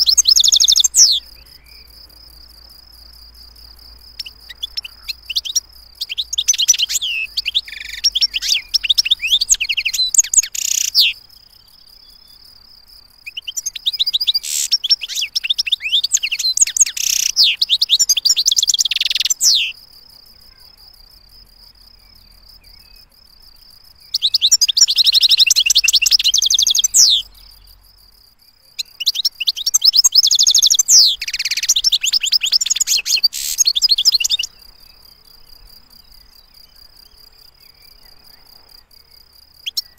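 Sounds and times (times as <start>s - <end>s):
goldfinch twittering song: 0.0s - 1.9s, 4.2s - 11.2s, 13.3s - 19.8s, 24.1s - 27.7s, 28.8s - 34.6s
high insect-like trill: 0.0s - 39.9s.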